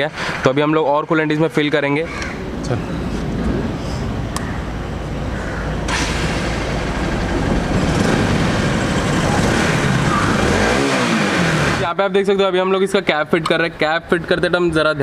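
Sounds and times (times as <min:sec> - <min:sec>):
motorcycle engine running: 0:06.3 - 0:11.8.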